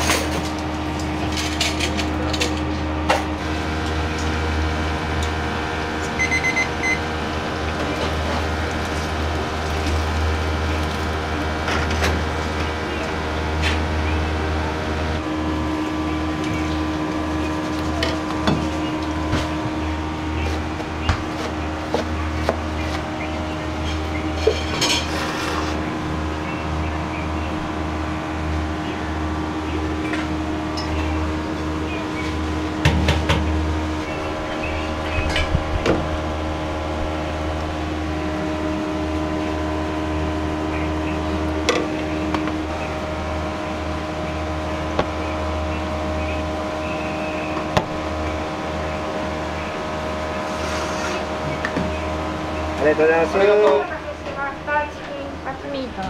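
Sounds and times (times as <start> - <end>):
kitchen equipment and fans humming: 0.0 - 56.0
plates on steel counter: 23.8 - 25.8.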